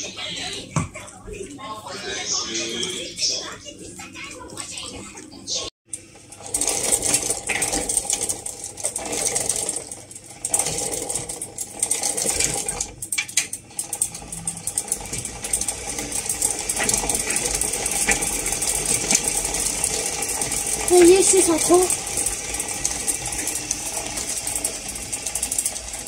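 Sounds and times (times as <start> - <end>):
motorized toy rattling and clicking: 3.2 - 26.0.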